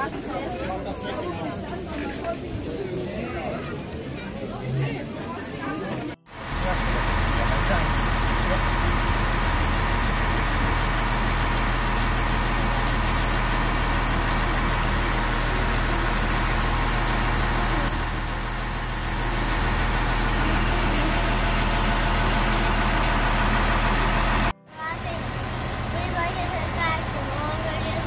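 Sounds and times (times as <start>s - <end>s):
electric train humming: 6.4s - 28.0s.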